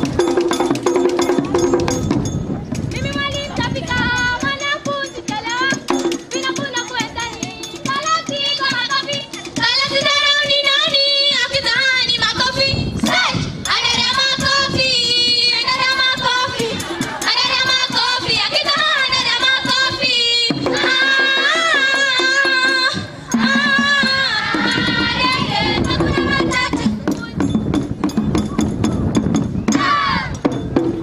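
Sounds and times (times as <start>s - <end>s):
percussive beat: 0.0s - 31.0s
girls singing in chorus: 13.1s - 27.0s.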